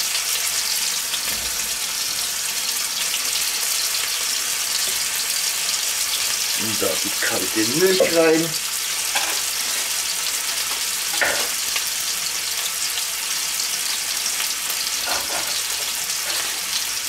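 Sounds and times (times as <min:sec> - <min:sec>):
steak sizzling in a pan: 0:00.0 - 0:17.0.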